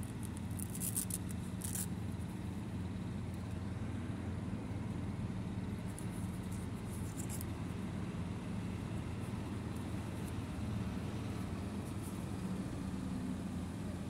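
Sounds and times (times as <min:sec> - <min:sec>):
paper tag rustling: 0:00.0 - 0:01.9, 0:05.9 - 0:07.5
low background hum: 0:00.0 - 0:14.0.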